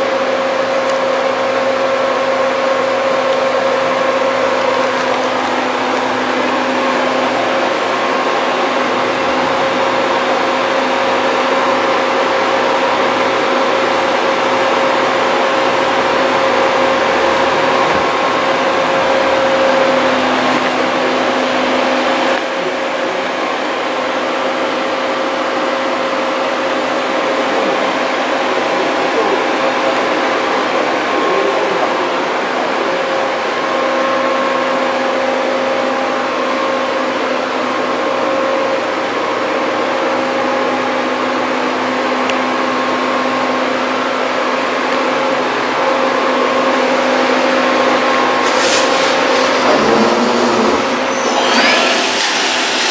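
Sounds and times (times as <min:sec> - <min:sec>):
drilling machine drilling metal: 0:48.6 - 0:52.9.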